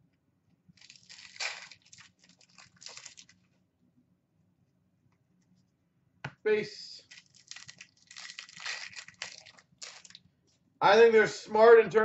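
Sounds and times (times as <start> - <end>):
trading cards rustling and clicking: 0.8 - 3.3.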